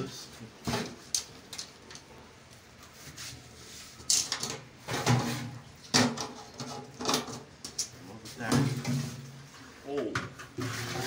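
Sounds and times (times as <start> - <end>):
sheet metal clunks and scrapes: 4.1 - 7.8, 8.4 - 11.0.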